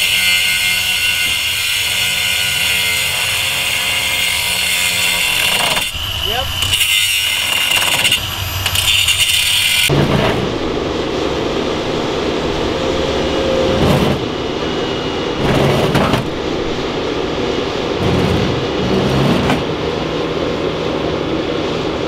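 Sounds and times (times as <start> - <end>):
high-pitched whine: 5.6 - 22.0
engine rumble: 9.9 - 22.0.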